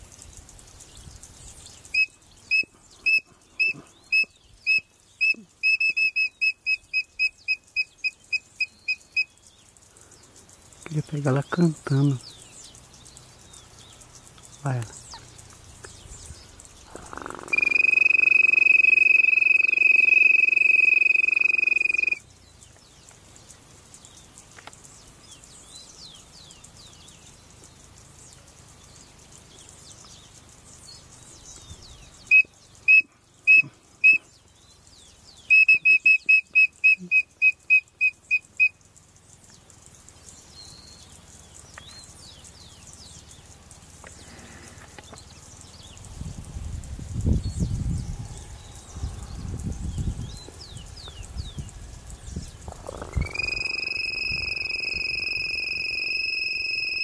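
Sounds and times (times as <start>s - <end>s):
whistled quail calls: 1.9s - 9.3s, 16.9s - 22.2s, 32.3s - 34.3s, 35.4s - 38.8s, 52.7s - 57.0s
faint bird calls: 13.6s - 22.2s, 52.4s - 57.0s.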